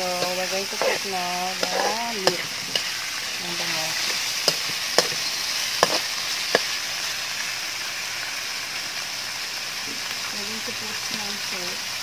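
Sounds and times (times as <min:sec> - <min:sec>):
metal spatula striking wok: 0:00.0 - 0:06.8
fish sizzling in hot oil: 0:00.0 - 0:12.0.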